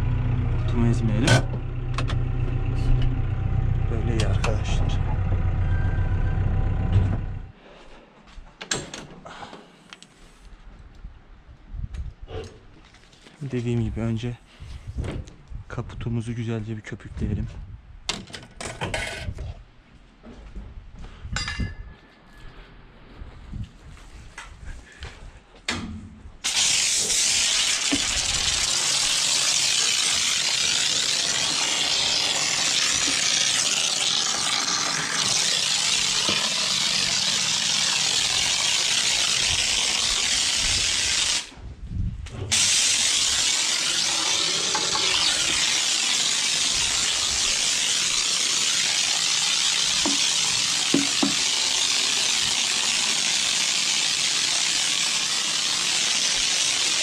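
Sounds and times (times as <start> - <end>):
pressure washer spraying: 26.4 - 41.5, 42.5 - 57.0.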